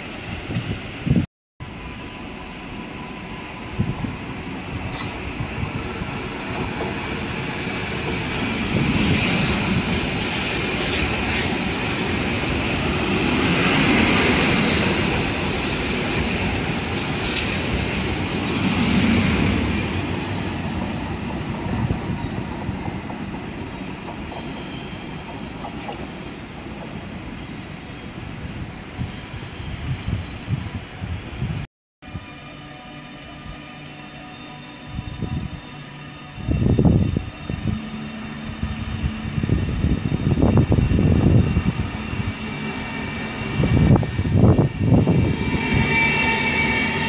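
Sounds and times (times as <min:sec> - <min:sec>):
train wheels rumbling on rails: 0:00.0 - 0:31.7, 0:38.5 - 0:47.0
brake and wheel squeals: 0:23.0 - 0:28.1, 0:29.0 - 0:31.7.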